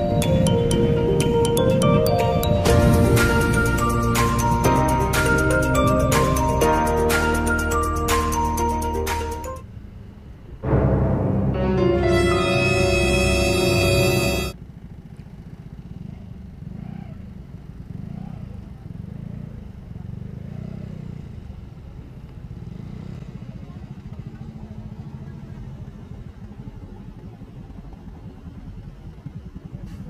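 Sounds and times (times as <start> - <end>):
scooter engine running: 0.0 - 8.5, 12.5 - 30.0.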